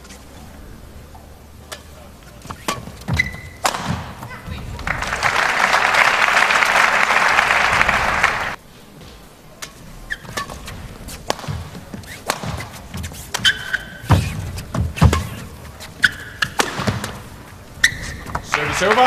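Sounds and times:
shoes squeaking on court floor: 1.8 - 4.6, 8.9 - 19.0
racket striking shuttlecock: 2.6 - 4.3, 11.2 - 18.4
crowd applauding: 4.7 - 8.6, 18.4 - 19.0.

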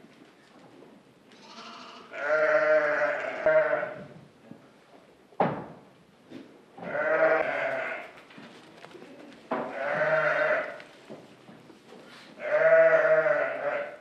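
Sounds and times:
sheep and goats bleating: 1.3 - 4.0, 6.8 - 8.1, 9.7 - 10.8, 12.4 - 14.0.

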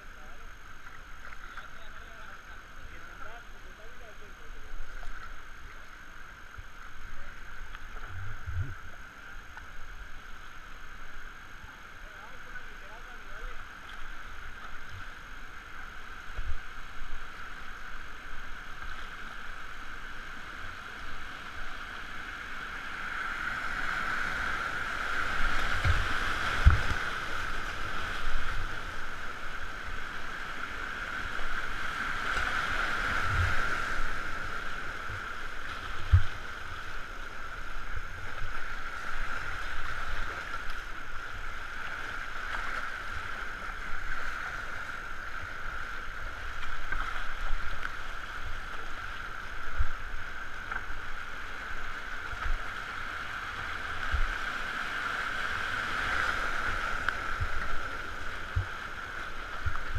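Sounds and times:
water thumping against boat: 25.6 - 27.1.

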